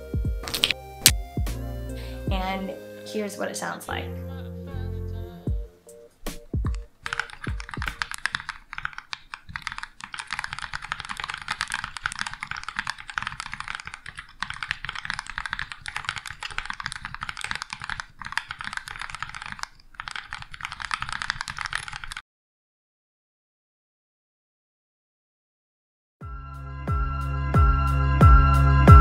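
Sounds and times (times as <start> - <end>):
fast typing on mechanical keyboard: 6.7 - 22.2.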